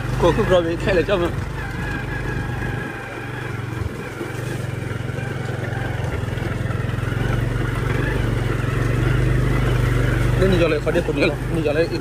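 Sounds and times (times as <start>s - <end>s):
vehicle engine running: 0.0s - 12.0s.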